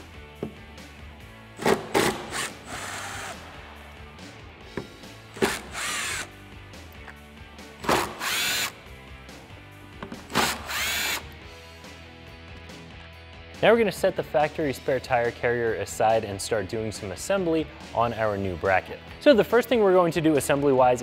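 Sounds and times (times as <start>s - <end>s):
cordless power driver whining: 4.8s - 6.4s, 7.8s - 8.8s, 10.3s - 11.4s.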